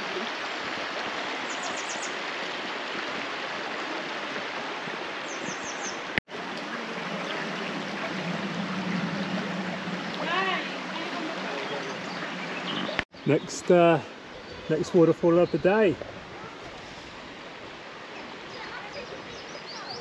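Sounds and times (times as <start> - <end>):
river running over rocks: 0.0 - 20.0.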